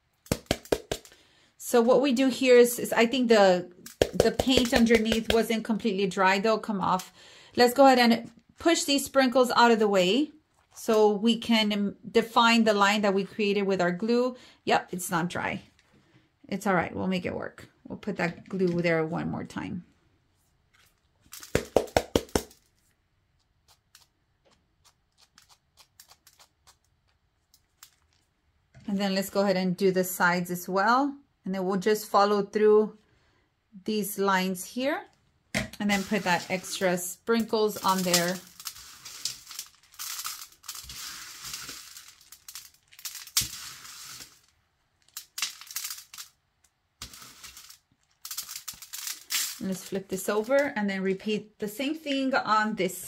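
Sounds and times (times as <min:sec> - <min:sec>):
sprinkles ticking on metal sheet: 0:37.4 - 0:44.5, 0:45.2 - 0:46.3, 0:47.0 - 0:50.6.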